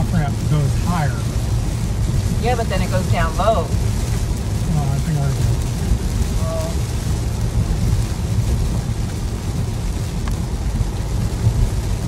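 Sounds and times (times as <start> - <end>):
heavy rain on car roof: 0.0 - 12.0
low road rumble: 0.0 - 12.0
tyres on wet road: 0.0 - 12.0.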